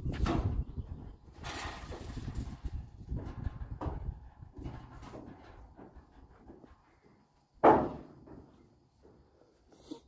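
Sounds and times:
wind buffeting microphone: 0:00.0 - 0:05.1.

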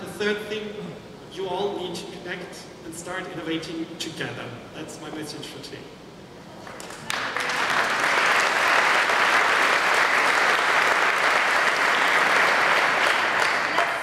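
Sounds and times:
audience applauding: 0:06.7 - 0:14.0.

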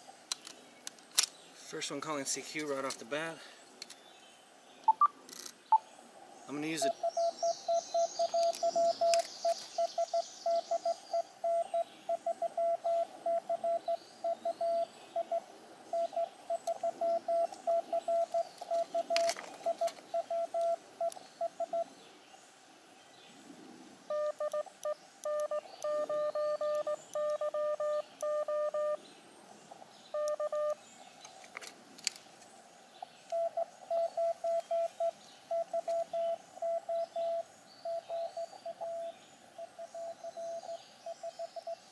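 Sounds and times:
morse code beeping: 0:04.9 - 0:05.1, 0:06.8 - 0:21.9, 0:24.1 - 0:29.0, 0:30.1 - 0:30.8, 0:33.3 - 0:41.4
lower-tone morse reply: 0:06.6 - 0:09.2, 0:24.1 - 0:29.0, 0:30.1 - 0:30.8.

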